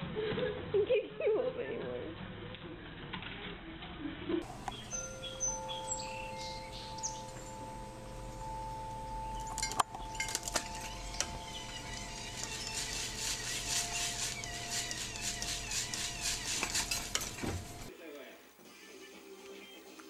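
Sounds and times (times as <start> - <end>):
small birds chirping: 4.4 - 17.9.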